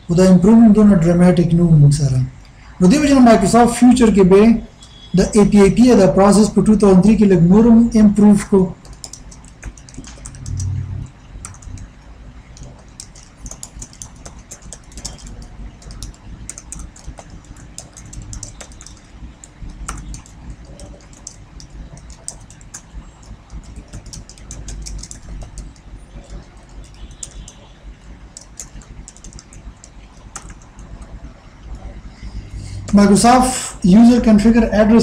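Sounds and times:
low steady hum: 0.0s - 35.0s
computer keyboard key clicks: 8.8s - 10.8s, 11.4s - 11.9s, 12.6s - 27.6s, 28.3s - 31.0s
short low rumble: 10.3s - 11.8s.

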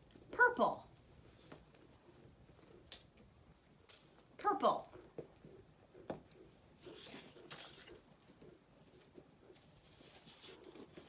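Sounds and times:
paper cards rustling: 6.8s - 8.2s.

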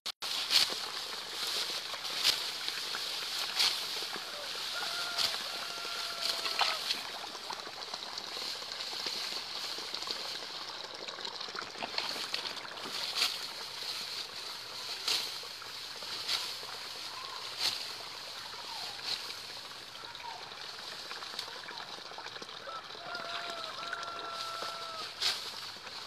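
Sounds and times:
rice stalks cut and rustling: 0.2s - 7.3s, 12.1s - 19.6s, 23.6s - 26.0s.

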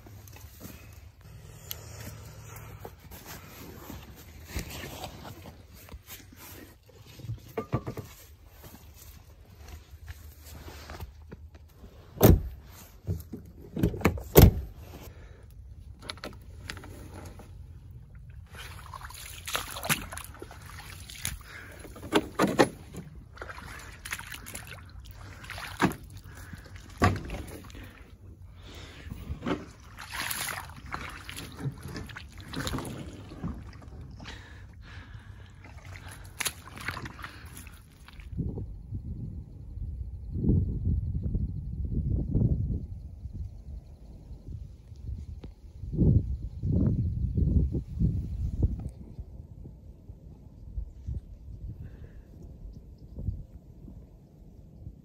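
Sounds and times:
brush rustling: 0.0s - 7.5s
footsteps in vegetation: 0.0s - 7.5s, 8.1s - 11.8s.

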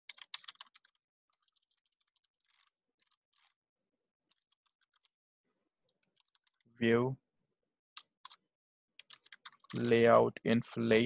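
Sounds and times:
computer keyboard typing: 0.1s - 2.7s, 8.0s - 8.4s, 9.0s - 10.0s.

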